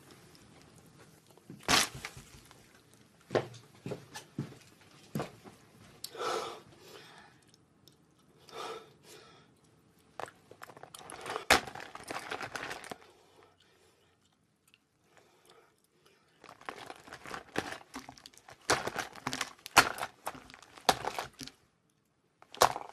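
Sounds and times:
plastic pouch crinkling: 10.2 - 13.0, 16.4 - 21.6, 22.4 - 22.9.

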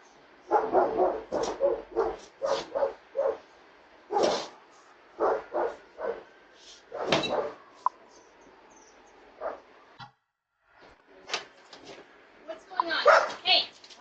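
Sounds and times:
dog barking: 0.5 - 3.5, 4.1 - 4.6, 5.2 - 6.3, 6.9 - 7.8, 9.4 - 9.7, 13.0 - 13.4.

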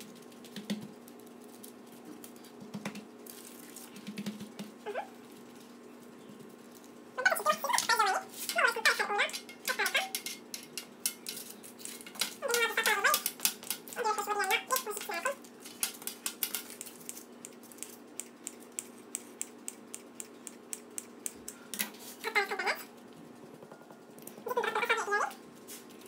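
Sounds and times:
scissors snipping dough: 7.6 - 21.6.

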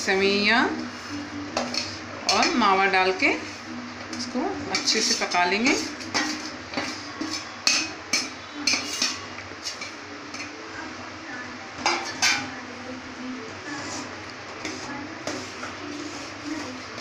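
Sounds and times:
ladle stirring thick liquid: 0.8 - 11.0, 13.7 - 17.0
metal spoon clinking on metal: 6.0 - 10.6.

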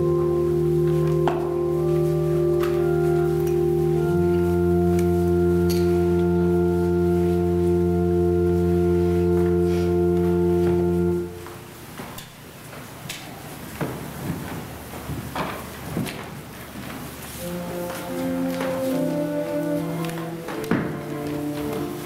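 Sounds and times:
organ playing sustained chords: 0.0 - 11.8, 17.4 - 22.0.

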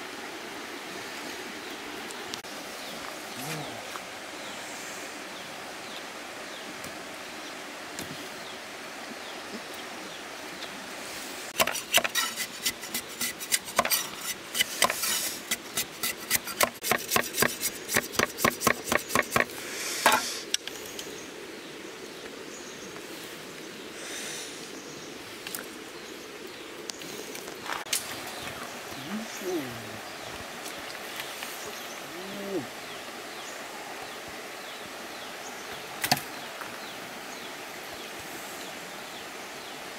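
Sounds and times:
steady background hiss: 0.0 - 39.9
machete chopping bamboo: 11.6 - 12.2, 14.6 - 19.5.

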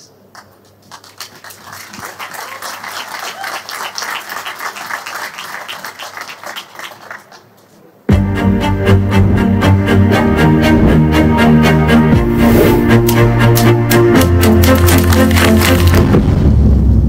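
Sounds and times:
audience applauding: 0.4 - 7.6, 13.6 - 16.2
loud music with strings: 8.1 - 16.5.

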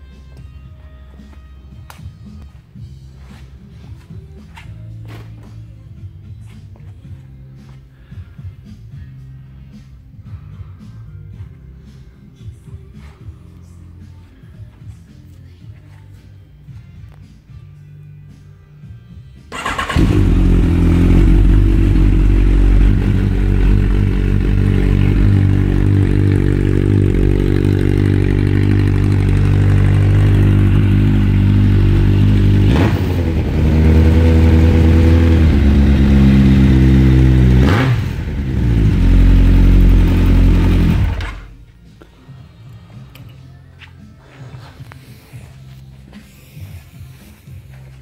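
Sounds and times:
motorcycle engine running: 19.5 - 41.6.

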